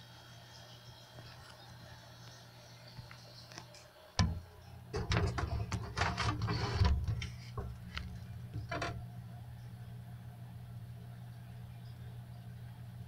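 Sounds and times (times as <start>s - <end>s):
low hum: 4.2s - 13.0s
phone handling clicks and rustles: 5.0s - 9.0s.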